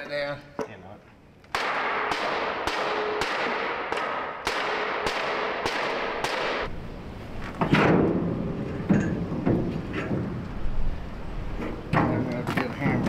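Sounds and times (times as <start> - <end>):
hammer striking steel: 1.6 - 6.7.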